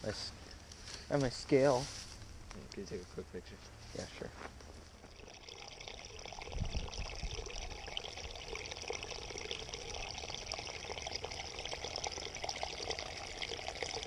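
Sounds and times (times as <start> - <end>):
water trickling among rocks: 4.7 - 14.0
wind rumble on microphone: 6.4 - 7.7.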